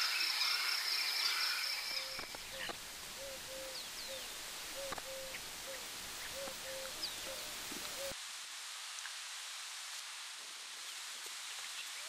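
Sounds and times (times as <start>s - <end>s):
thin high calls: 0.0s - 8.2s
steady hiss: 0.0s - 12.0s
low arched animal call: 1.9s - 8.2s.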